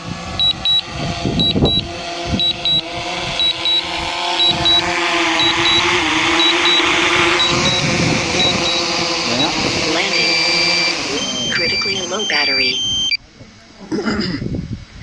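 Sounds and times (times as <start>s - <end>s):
drone propellers humming: 0.0s - 13.2s
controller double beeping: 0.4s - 0.8s, 1.4s - 1.8s, 2.4s - 2.8s, 3.4s - 3.8s, 4.4s - 13.2s.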